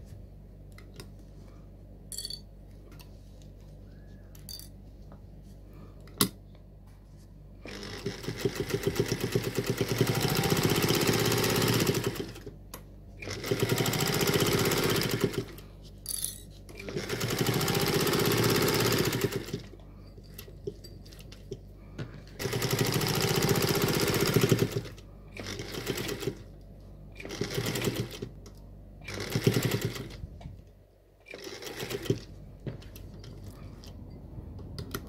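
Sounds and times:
sewing machine stitching: 7.6s - 12.5s, 13.2s - 15.6s, 16.7s - 20.4s, 22.4s - 26.5s, 27.2s - 28.4s, 29.0s - 30.2s, 31.3s - 33.0s.

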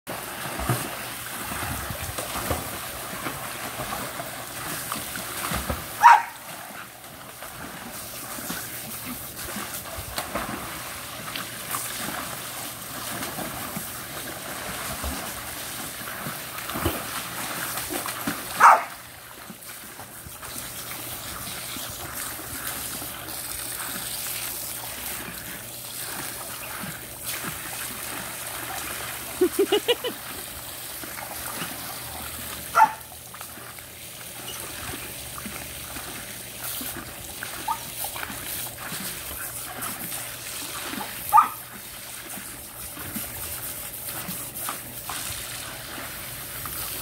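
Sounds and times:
dog barking: 6.0s - 6.4s, 18.6s - 18.9s, 32.7s - 33.0s, 41.3s - 41.6s
water spraying from hose: 27.2s - 30.0s.

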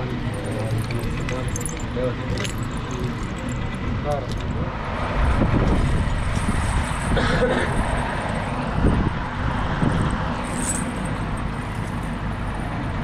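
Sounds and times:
faint voices: 0.0s - 4.9s
traffic rumble: 0.0s - 13.0s.

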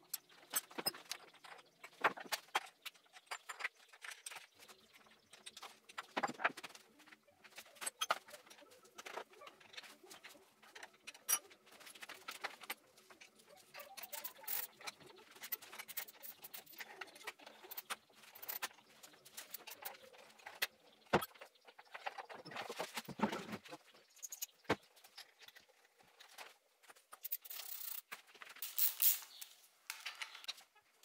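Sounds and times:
tools and metal parts clinking: 0.1s - 6.8s, 7.5s - 20.6s, 27.1s - 30.6s
metallic rattles: 28.6s - 30.5s.

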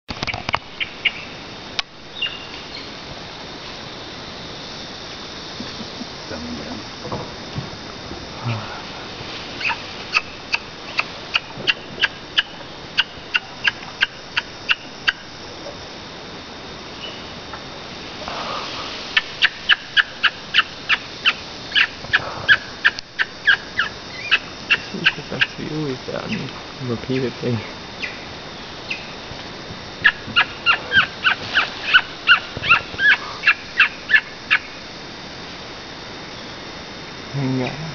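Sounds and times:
monkey yelping: 30.0s - 34.2s.

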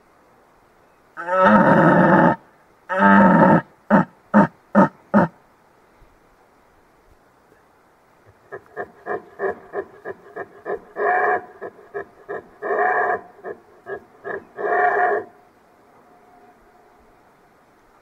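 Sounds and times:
elk calls: 8.4s - 15.5s
elk grunting: 8.5s - 15.4s.

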